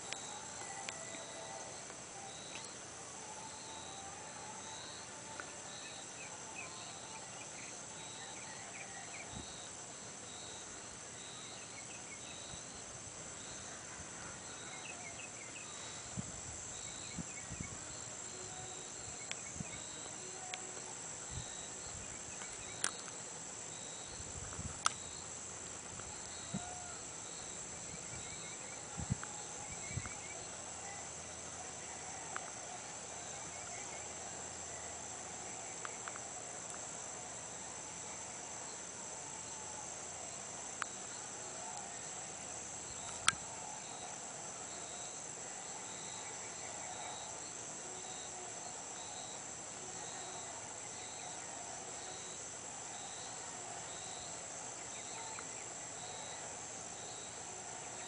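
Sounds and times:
insect chirps: 0:00.0 - 0:58.0
insects trilling: 0:00.0 - 0:58.0.

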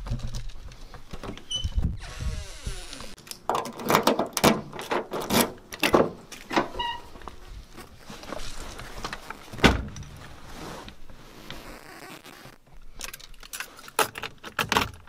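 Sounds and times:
keys and door clicking and rattling: 0:12.9 - 0:15.0.

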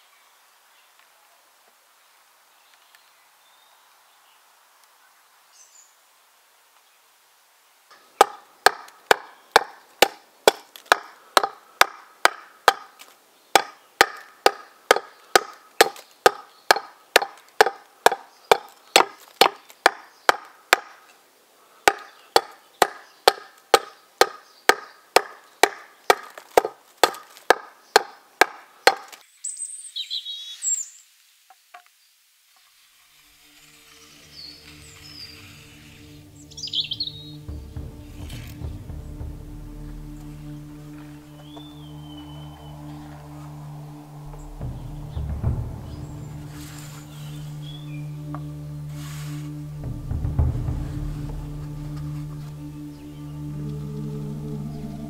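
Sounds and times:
axe chopping wood: 0:08.2 - 0:21.0, 0:21.9 - 0:29.2.

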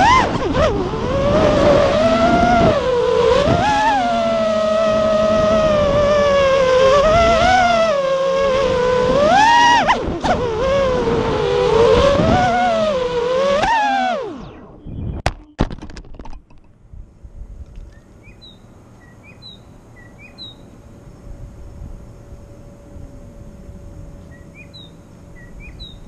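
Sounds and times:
quadcopter motors whining: 0:00.0 - 0:15.2, 0:17.5 - 0:26.0
quadcopter crashing knocks: 0:15.2 - 0:16.8.

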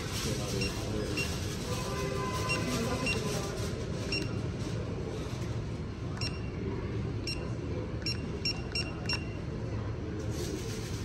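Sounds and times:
keypad beeps: 0:04.1 - 0:04.4, 0:06.2 - 0:06.5, 0:07.2 - 0:09.4.

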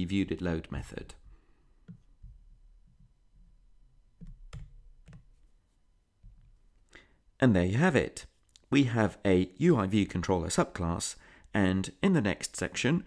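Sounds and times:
keyboard and mouse clicks: 0:04.2 - 0:05.4.

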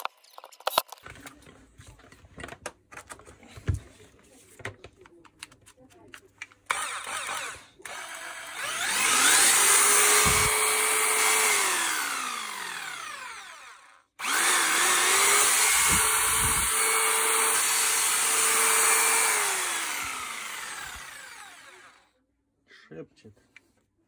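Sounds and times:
electric jigsaw motor running: 0:06.7 - 0:22.1.

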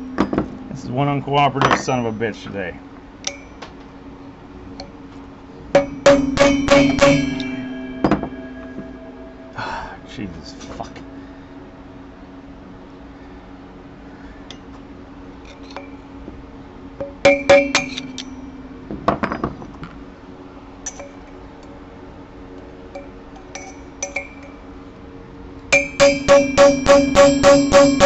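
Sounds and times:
hammer striking metal: 0:00.0 - 0:00.6, 0:05.7 - 0:09.6, 0:17.0 - 0:19.5, 0:25.7 - 0:28.0
steady low hum: 0:00.0 - 0:28.0.

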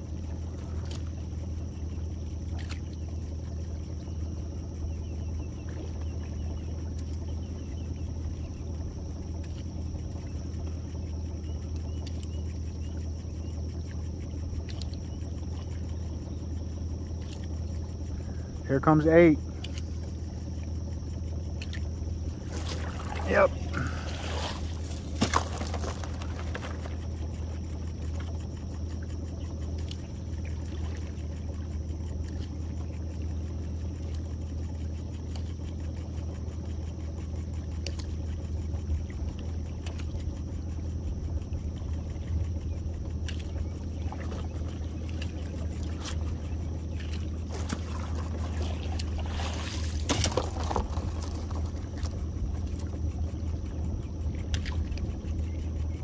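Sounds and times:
outboard motor idling: 0:00.0 - 0:56.0
brief knocks or splashes: 0:24.1 - 0:27.0.

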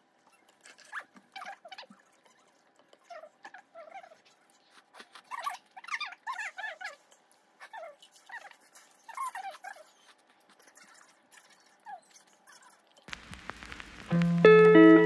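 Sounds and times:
high-pitched whimpering squeaks: 0:00.2 - 0:13.8.

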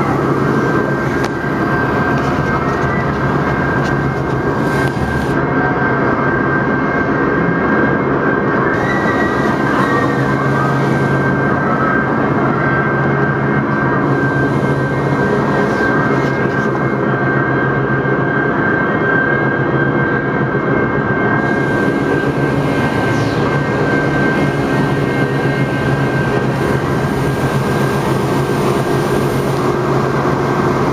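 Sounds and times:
churning water: 0:00.0 - 0:05.4, 0:21.4 - 0:30.9
high whine: 0:00.0 - 0:30.9
machinery hum: 0:00.0 - 0:30.9.

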